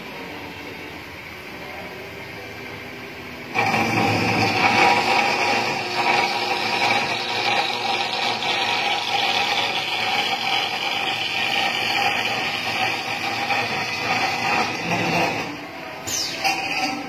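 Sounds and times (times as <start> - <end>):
metal cutting saw whirring: 3.5 - 17.0.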